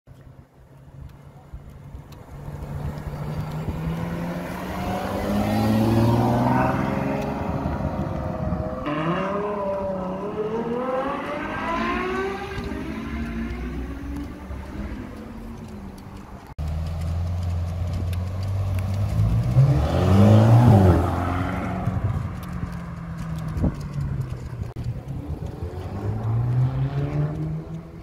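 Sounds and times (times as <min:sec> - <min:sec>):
sports car engine accelerating: 0:02.2 - 0:28.0.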